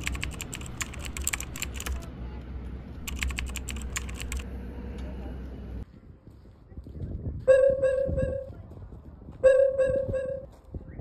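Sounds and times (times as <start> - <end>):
keyboard typing clicks: 0.0 - 2.0, 3.0 - 4.4
low steady rumble: 7.2 - 10.5.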